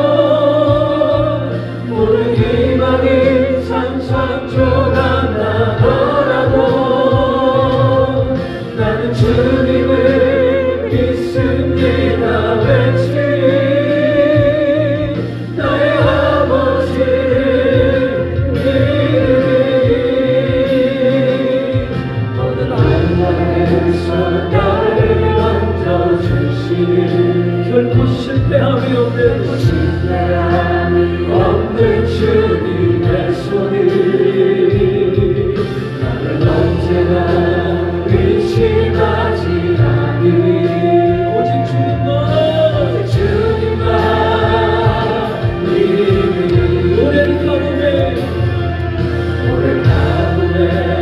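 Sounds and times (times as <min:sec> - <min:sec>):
gospel choir singing: 0:00.0 - 0:51.0
sustained bass accompaniment: 0:00.0 - 0:51.0.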